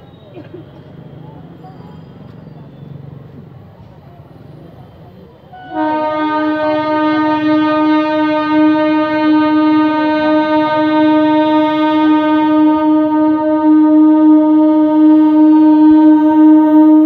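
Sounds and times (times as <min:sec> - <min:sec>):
low rumble of train: 0:00.0 - 0:17.0
train horn blast: 0:05.5 - 0:17.0.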